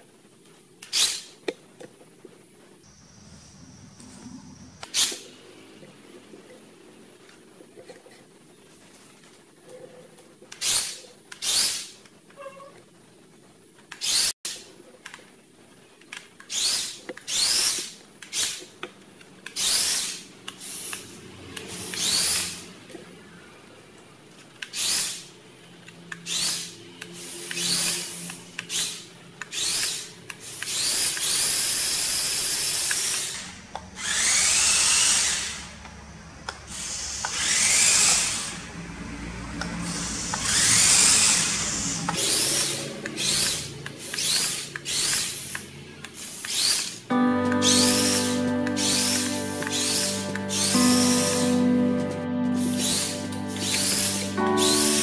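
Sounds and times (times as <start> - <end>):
toy electric motor whining: 0.9 - 1.3, 10.6 - 11.9, 14.0 - 14.4, 16.4 - 18.7, 19.5 - 22.7, 24.6 - 25.3, 26.2 - 35.8, 36.7 - 38.7, 39.8 - 47.0.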